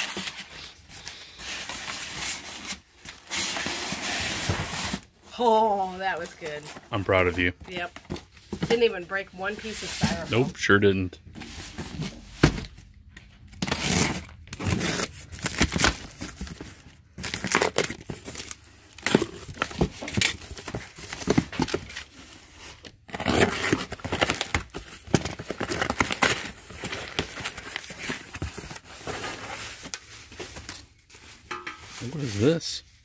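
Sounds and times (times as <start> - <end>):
cardboard flaps rustling and tearing: 13.5 - 30.8
box cutter slicing tape and cardboard: 13.6 - 16.0, 23.1 - 24.6
bubble wrap crinkling: 13.6 - 33.0.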